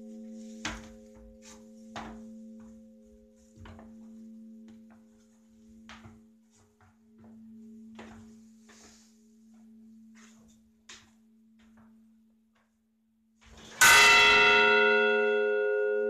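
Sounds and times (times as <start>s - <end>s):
church bell humming: 0.0s - 1.7s, 13.8s - 16.0s.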